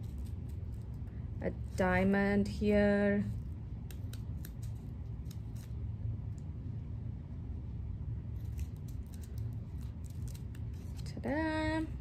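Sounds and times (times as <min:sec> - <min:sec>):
scissors snipping paper: 0:00.0 - 0:01.0, 0:03.8 - 0:05.8, 0:08.4 - 0:11.4
steady low hum: 0:00.0 - 0:12.0.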